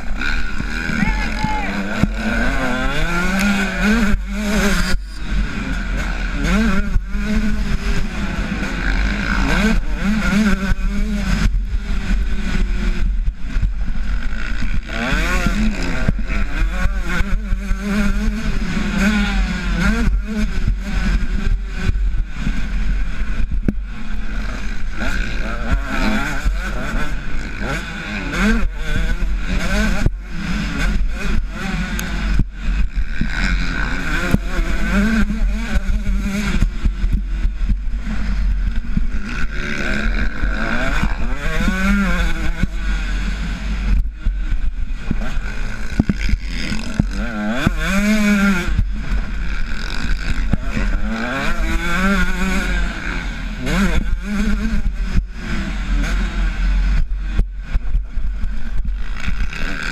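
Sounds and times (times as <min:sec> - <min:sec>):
dirt bike engine revving: 0:00.0 - 0:59.9
wind rumble on microphone: 0:28.7 - 0:59.9.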